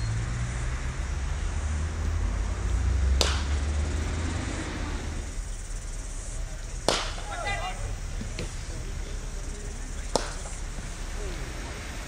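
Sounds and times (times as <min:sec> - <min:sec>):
low outdoor rumble: 0:00.0 - 0:12.0
cricket bat striking ball: 0:03.0 - 0:11.0.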